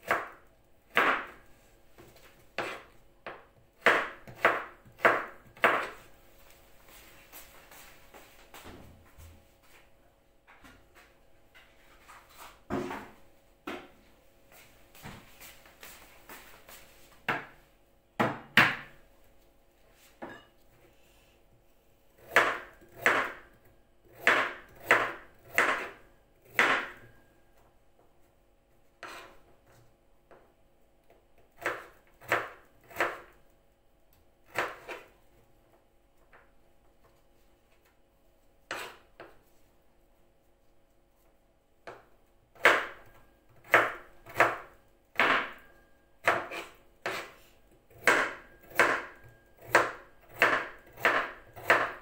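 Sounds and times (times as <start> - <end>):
knife knocking on cutting board: 18.2 - 18.9.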